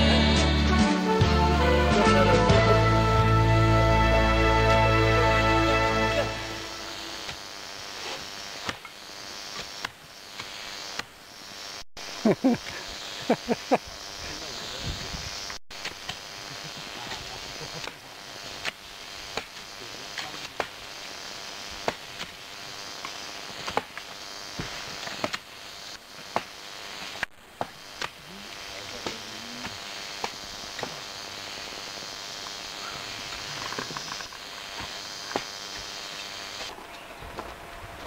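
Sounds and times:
steady high hiss: 0:00.0 - 0:37.9
hoes striking dry earth: 0:08.0 - 0:11.1, 0:17.1 - 0:20.8, 0:21.8 - 0:22.4, 0:23.0 - 0:25.5, 0:26.2 - 0:28.3.

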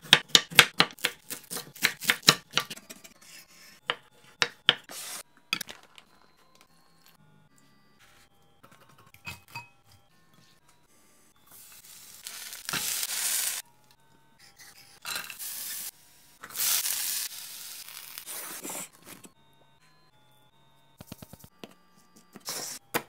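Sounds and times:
soft background music: 0:00.0 - 0:23.0
batter sizzling in a pan: 0:11.6 - 0:13.6, 0:15.2 - 0:15.9, 0:16.5 - 0:18.4.

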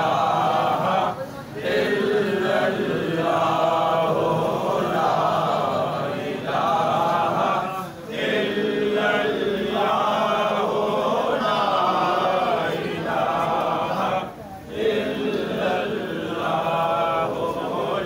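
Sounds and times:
men chanting in unison: 0:00.0 - 0:18.0.

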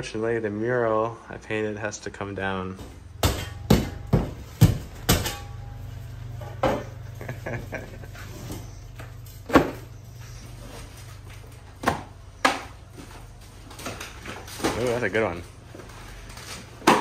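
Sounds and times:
steady low hum: 0:00.0 - 0:14.8
drywall knocking and cracking: 0:03.2 - 0:05.4.

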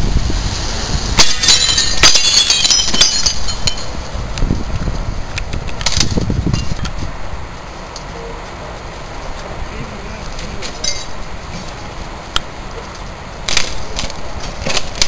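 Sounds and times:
glass shards tinkling: 0:01.2 - 0:04.1, 0:10.6 - 0:11.2.

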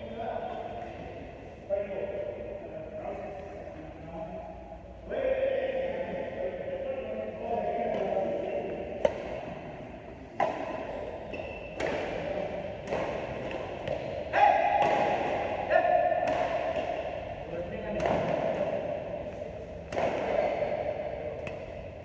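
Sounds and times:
people's voices in a hall: 0:00.0 - 0:22.0
racket hitting shuttlecock: 0:07.9 - 0:22.0.

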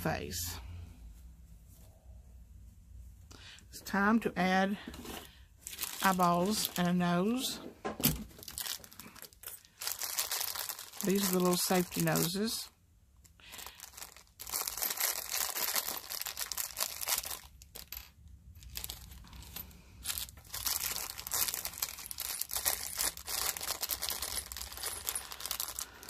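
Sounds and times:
plastic bag crinkling: 0:05.6 - 0:07.4, 0:08.2 - 0:12.6, 0:13.3 - 0:26.0.

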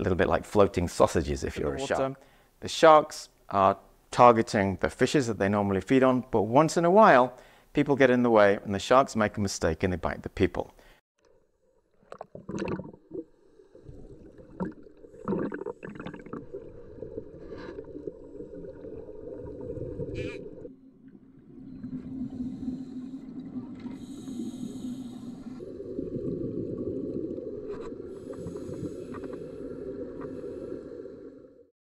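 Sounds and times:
underwater bubbles gurgling: 0:12.1 - 0:31.7.

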